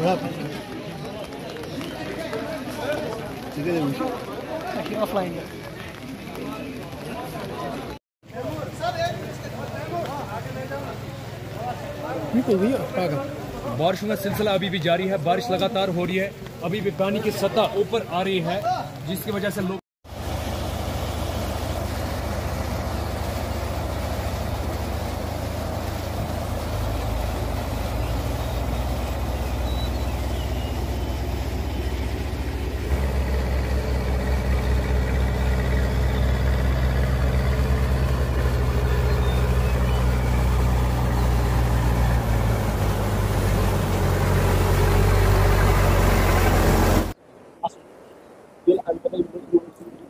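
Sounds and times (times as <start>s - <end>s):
wheels splashing through water: 0.0s - 47.2s
water rushing: 0.0s - 50.0s
diesel engine running: 20.1s - 47.2s.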